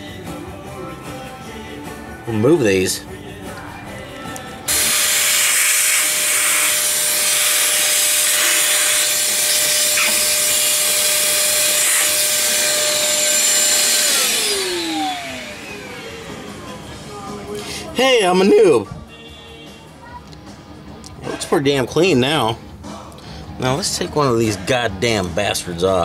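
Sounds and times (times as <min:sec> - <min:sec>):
vacuum motor spinning down: 0:04.7 - 0:16.9
wet dry vacuum running: 0:04.7 - 0:17.4.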